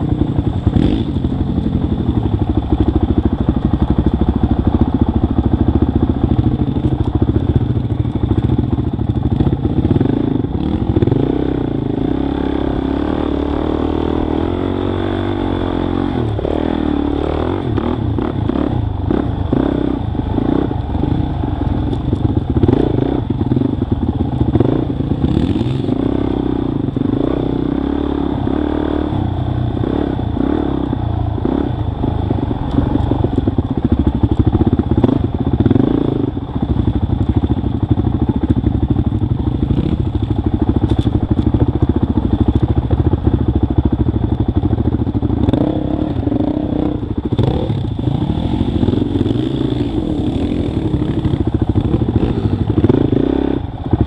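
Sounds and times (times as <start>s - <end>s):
dirt bike engine revving: 0.0s - 3.2s, 7.6s - 33.2s, 39.4s - 42.4s, 44.6s - 54.0s.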